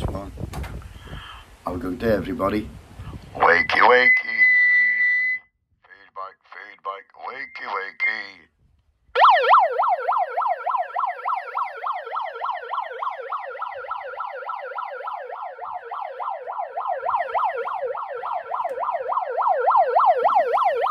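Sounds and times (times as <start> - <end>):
megaphone siren yelping: 3.4 - 5.4, 9.2 - 20.9.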